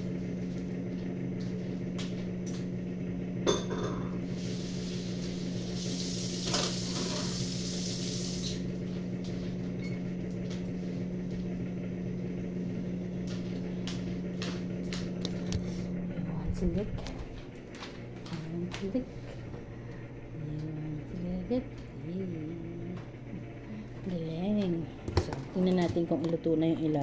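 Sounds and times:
low appliance hum: 0:00.0 - 0:27.0
hiss: 0:04.3 - 0:08.6.

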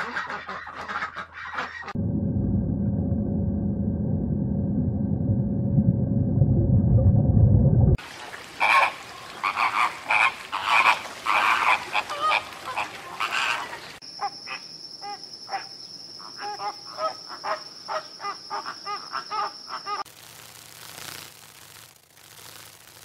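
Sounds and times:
flamingos honking and grunting: 0:08.4 - 0:14.0.

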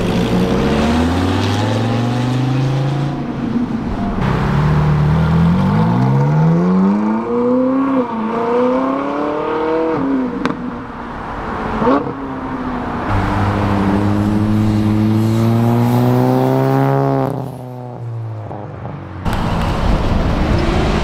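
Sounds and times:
car engine accelerating hard: 0:00.0 - 0:03.3, 0:13.1 - 0:17.4
car engine pulling away: 0:00.0 - 0:10.0, 0:13.0 - 0:17.7.

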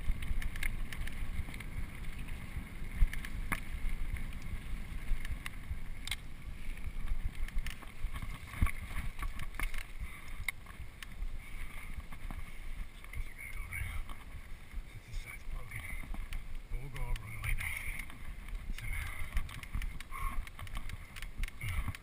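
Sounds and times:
bike rattling and knocking: 0:00.0 - 0:12.6, 0:13.2 - 0:22.0
wind rumbling on microphone: 0:00.0 - 0:22.0.

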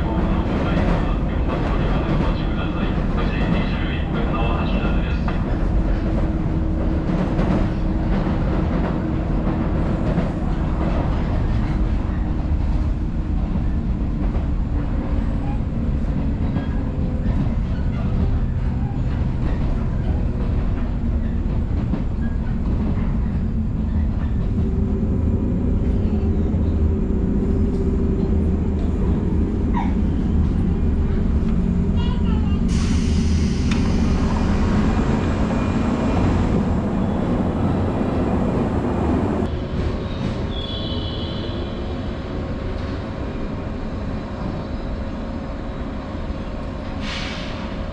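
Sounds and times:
train rumbling on rails: 0:00.0 - 0:47.9.

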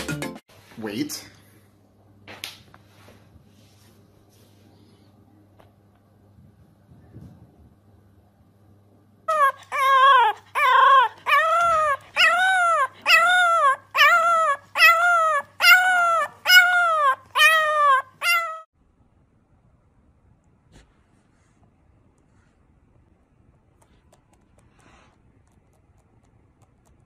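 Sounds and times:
puppy howling: 0:09.3 - 0:18.7.

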